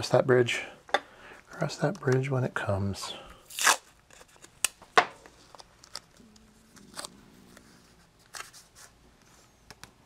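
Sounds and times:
tape rustling and clicks: 3.5 - 8.7.

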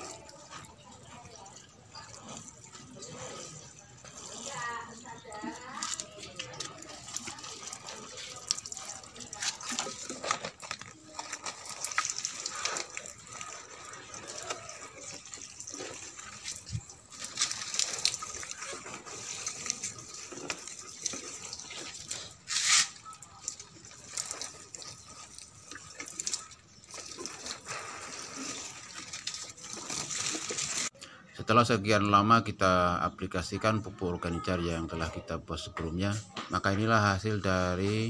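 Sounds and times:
liquid splashing onto soil: 2.0 - 30.9.

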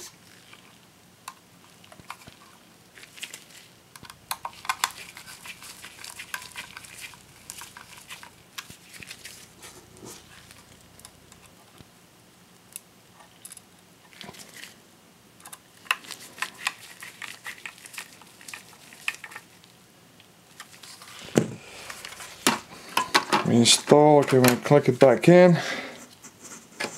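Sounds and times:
screwdriver clicking and scraping: 4.0 - 9.1
metal caddy clinking: 4.0 - 10.6.

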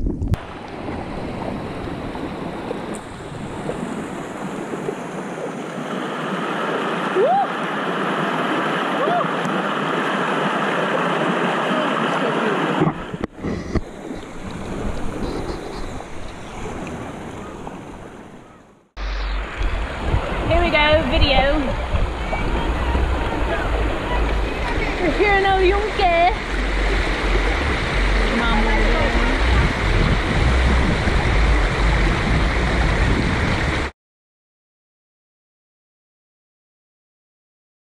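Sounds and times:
river rushing over rocks: 0.4 - 13.3, 19.0 - 33.9.

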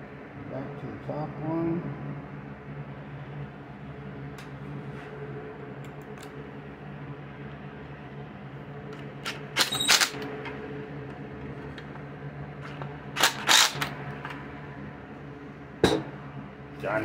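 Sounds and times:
cordless driver running: 12.7 - 14.0.

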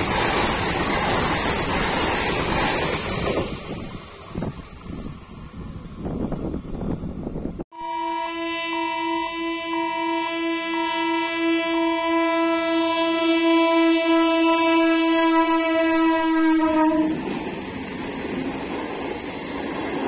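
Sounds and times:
wind noise: 0.0 - 7.6
train horn blast: 7.7 - 17.4.

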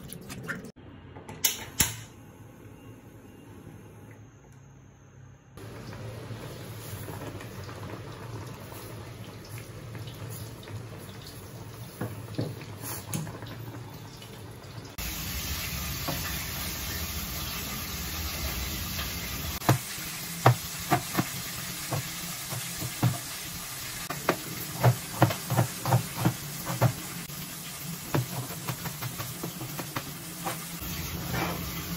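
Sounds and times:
water boiling in a pot: 5.6 - 31.9
knife chopping on a cutting board: 24.2 - 27.1.

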